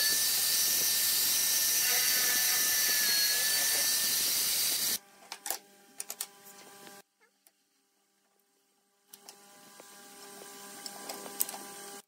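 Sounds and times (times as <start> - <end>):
electric drill whining: 0.0 - 5.0.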